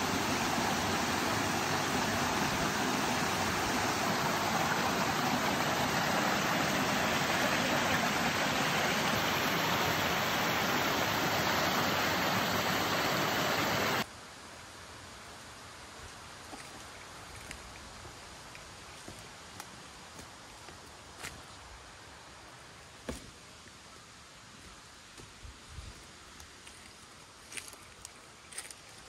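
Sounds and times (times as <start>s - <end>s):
waterfall roaring: 0.0s - 14.0s.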